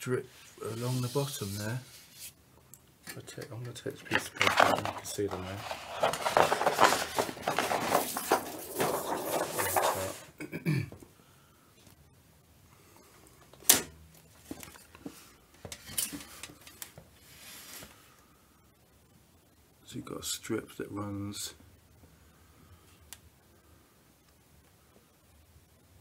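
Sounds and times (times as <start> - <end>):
plastic sheet rustling and crackling: 4.0 - 10.4.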